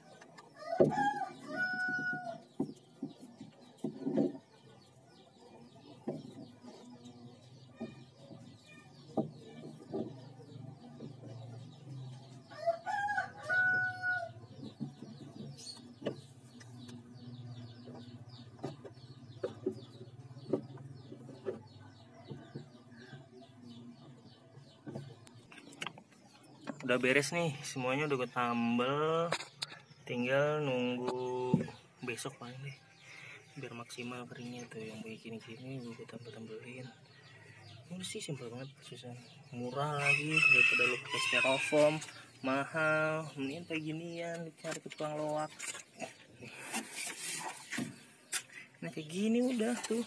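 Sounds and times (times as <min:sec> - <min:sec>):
rooster crowing: 0:00.6 - 0:02.4, 0:12.5 - 0:14.4, 0:40.0 - 0:42.0.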